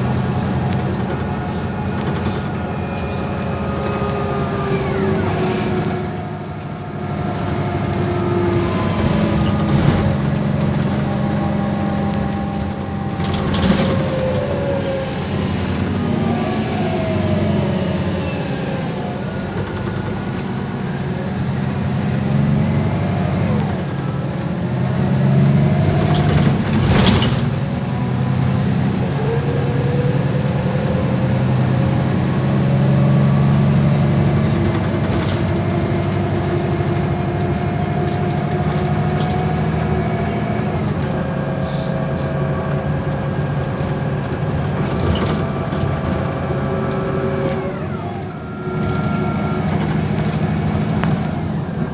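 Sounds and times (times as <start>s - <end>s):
bus engine drone: 0.0s - 51.9s
rising and falling whine: 0.1s - 21.4s.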